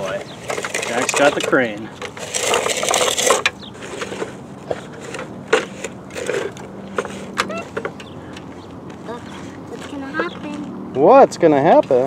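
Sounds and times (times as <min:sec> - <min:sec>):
toy bucket scraping through sand: 0:00.0 - 0:07.8.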